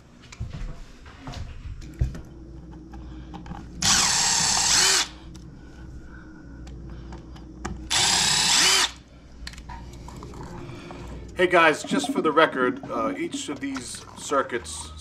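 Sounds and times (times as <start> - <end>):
cordless driver running: 3.8 - 5.2, 7.9 - 9.0.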